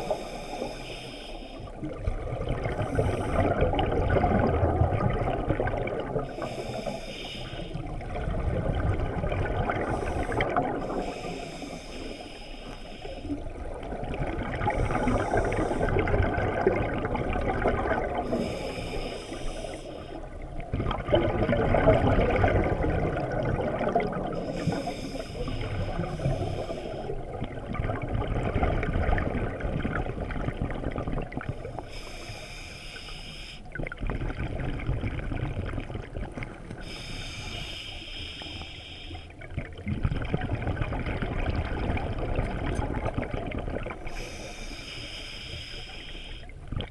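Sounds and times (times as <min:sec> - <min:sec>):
regulator hissing inhale: 0:00.0 - 0:01.8, 0:02.8 - 0:03.6, 0:06.3 - 0:07.9, 0:09.8 - 0:13.5, 0:14.7 - 0:16.1, 0:18.3 - 0:20.4, 0:24.3 - 0:27.3, 0:31.8 - 0:33.8, 0:36.7 - 0:39.4, 0:44.1 - 0:46.6
gurgling exhaled bubbles: 0:01.6 - 0:11.6, 0:13.2 - 0:32.3, 0:33.7 - 0:37.7, 0:39.2 - 0:44.7.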